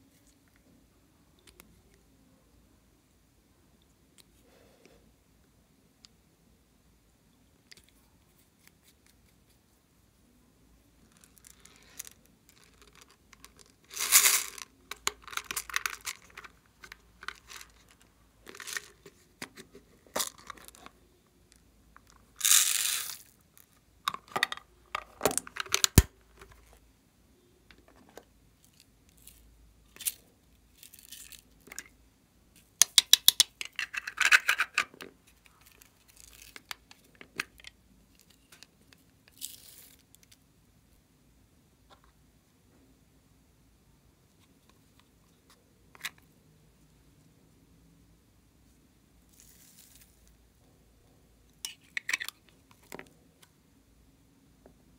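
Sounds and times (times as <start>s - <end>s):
plastic beads rattling into glass dish: 11.1s - 19.0s, 22.4s - 23.4s, 39.3s - 40.0s
plastic containers being handled: 11.2s - 21.0s, 24.0s - 26.8s.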